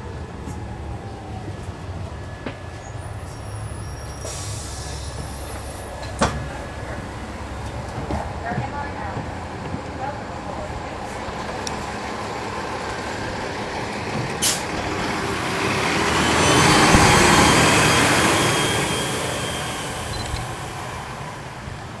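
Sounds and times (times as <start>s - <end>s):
bus diesel engine: 0.0s - 22.0s
air brake hiss: 4.1s - 5.3s, 14.4s - 14.6s
faint high whistle: 17.4s - 20.4s.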